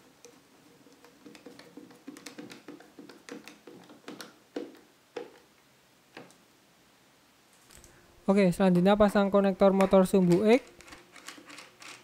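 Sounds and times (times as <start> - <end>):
screwdriver clicking and scraping: 0.2 - 5.4, 9.6 - 12.0.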